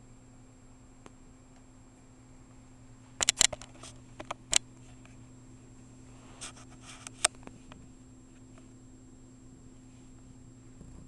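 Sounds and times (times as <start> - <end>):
clicks and scuffs on camera: 6.2 - 8.7.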